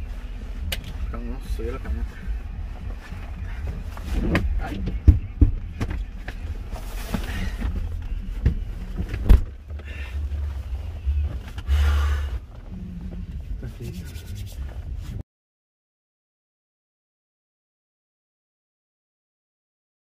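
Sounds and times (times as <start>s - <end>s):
clothing and seat rustling: 0.0s - 15.2s
steady low rumble: 0.0s - 15.2s
car door shutting: 8.4s - 9.6s.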